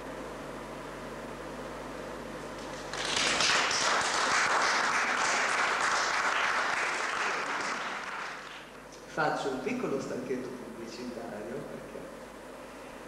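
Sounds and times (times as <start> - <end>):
audience applauding: 2.6 - 8.7.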